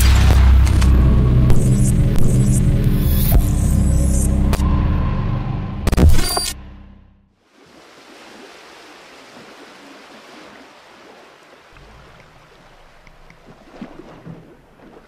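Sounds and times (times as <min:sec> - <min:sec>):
low rumble: 0:00.0 - 0:07.3
water rushing and splashing: 0:07.4 - 0:15.0.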